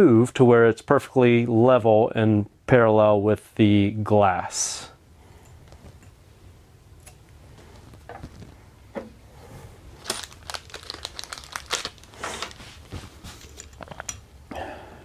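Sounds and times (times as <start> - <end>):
paper crinkling: 9.9 - 13.7.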